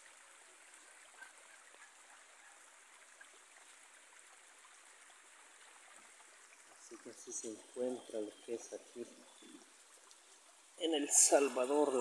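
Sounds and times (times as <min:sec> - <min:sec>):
rainwater running over dirt: 0:00.0 - 0:12.0
rain falling: 0:06.5 - 0:12.0.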